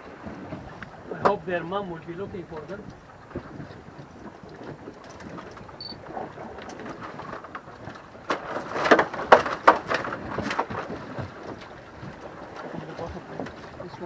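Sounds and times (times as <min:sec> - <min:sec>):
sea noise: 0:00.0 - 0:14.0
wind: 0:00.0 - 0:14.0
fish knocking in plastic bucket: 0:06.6 - 0:11.6.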